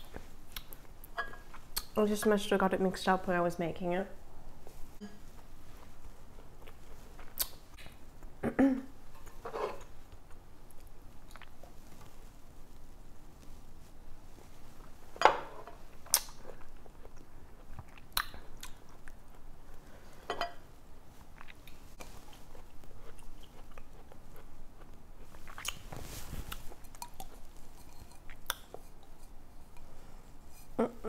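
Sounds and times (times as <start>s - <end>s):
person chewing: 6.3s - 8.0s, 10.1s - 11.6s, 16.0s - 19.5s, 21.2s - 29.9s.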